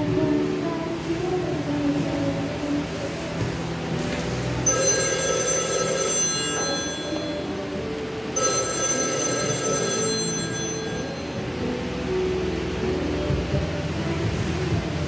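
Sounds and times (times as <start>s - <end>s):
telephone ringing: 4.6s - 11.7s.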